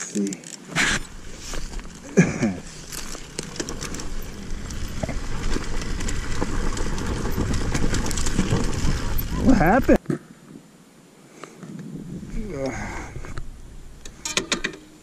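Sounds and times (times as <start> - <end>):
bike knocking over stones: 0.8 - 10.0
dirt bike engine at low revs: 0.8 - 10.0.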